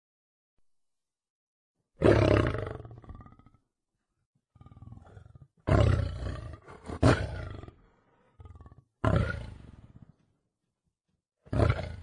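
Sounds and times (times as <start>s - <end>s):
lion roaring: 2.0s - 3.6s, 4.6s - 10.3s, 11.5s - 12.0s
lion grunting: 4.6s - 10.2s, 11.5s - 12.0s.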